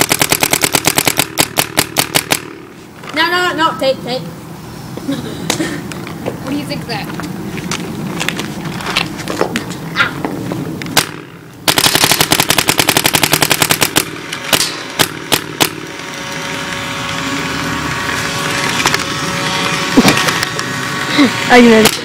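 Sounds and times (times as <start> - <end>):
paintball marker shots: 0.0 - 2.7, 10.9 - 15.9.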